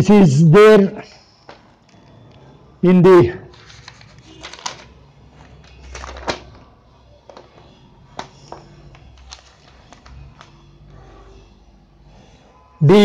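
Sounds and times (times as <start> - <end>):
paper rustling: 3.5 - 11.2.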